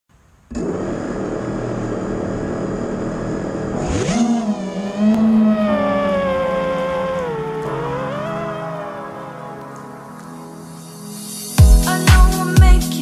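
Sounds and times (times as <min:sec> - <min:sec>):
drone motors whining: 0:00.5 - 0:10.6.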